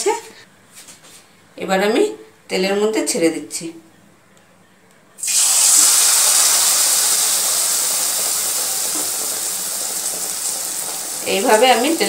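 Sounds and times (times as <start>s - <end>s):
hot oil sizzling: 5.2s - 12.0s.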